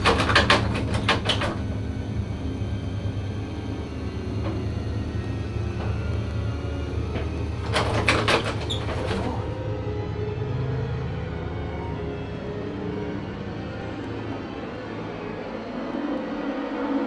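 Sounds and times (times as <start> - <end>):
door rattling and knocking: 0.0 - 1.8, 7.2 - 9.6
low steady drone: 0.0 - 17.0.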